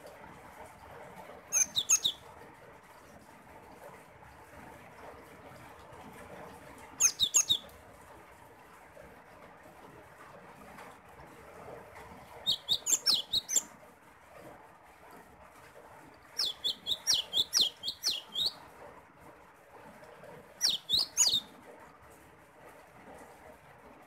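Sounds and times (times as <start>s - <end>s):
bird singing high chirps: 1.5s - 2.2s, 7.0s - 7.6s, 12.5s - 13.6s, 16.4s - 18.6s, 20.6s - 21.4s.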